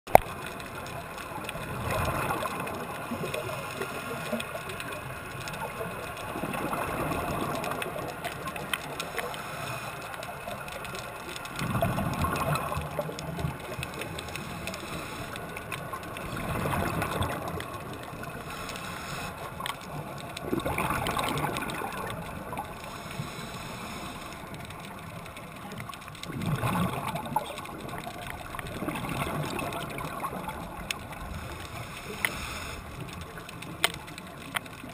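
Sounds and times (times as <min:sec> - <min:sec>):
exhaled bubbles gushing: 0:00.1 - 0:34.9
diver breathing through regulator: 0:09.0 - 0:10.2, 0:14.2 - 0:15.6, 0:18.4 - 0:19.5, 0:22.9 - 0:24.5, 0:31.3 - 0:33.2.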